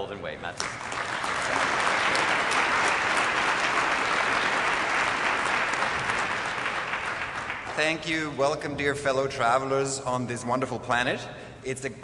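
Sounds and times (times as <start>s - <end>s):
audience applauding: 0.6s - 8.5s.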